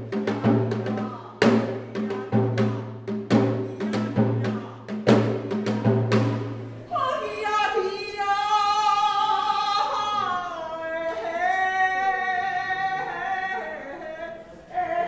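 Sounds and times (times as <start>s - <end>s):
woman singing high notes: 6.9s - 15.0s.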